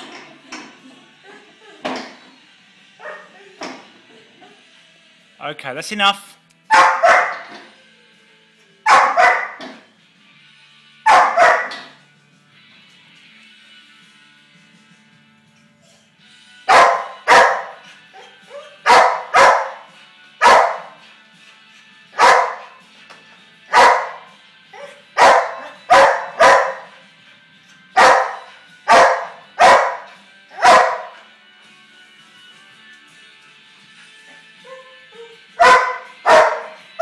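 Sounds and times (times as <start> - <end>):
dog barking: 3.0 - 3.4, 6.7 - 7.5, 8.8 - 9.6, 11.1 - 12.0, 16.7 - 21.0, 22.2 - 22.8, 23.7 - 27.0, 28.0 - 31.2, 35.6 - 36.9.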